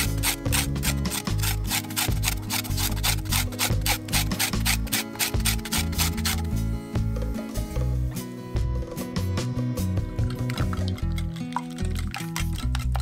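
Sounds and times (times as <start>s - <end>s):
background music: 0.0s - 13.0s.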